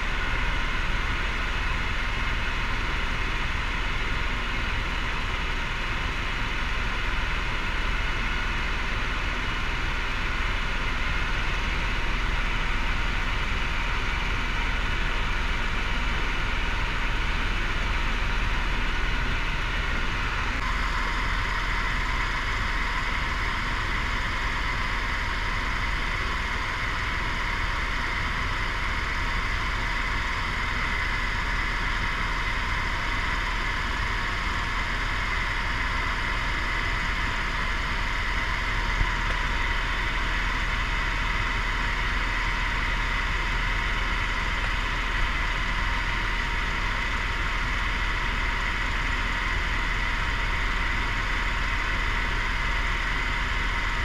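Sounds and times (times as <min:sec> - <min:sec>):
helicopter engine and rotor noise: 0:00.0 - 0:54.0.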